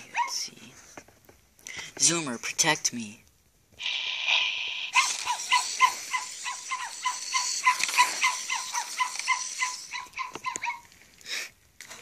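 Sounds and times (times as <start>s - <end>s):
steady hiss: 3.8s - 10.2s
electronic toy barking: 3.8s - 10.9s.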